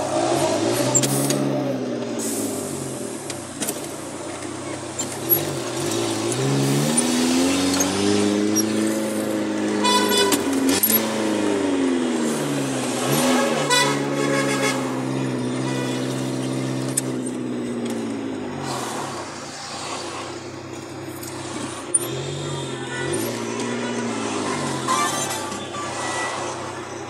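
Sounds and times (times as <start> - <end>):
car horn blasts: 9.7 - 10.5, 13.1 - 16.3, 22.1 - 26.8.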